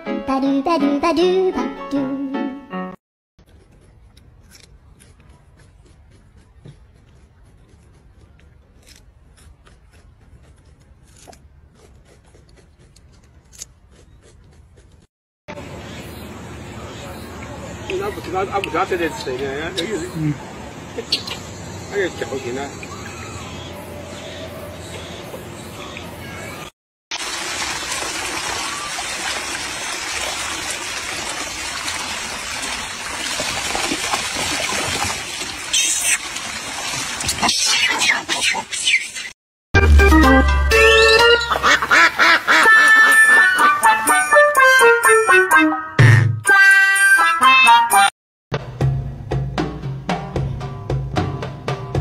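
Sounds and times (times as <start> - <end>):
water trickling over rocks: 27.1 - 37.6.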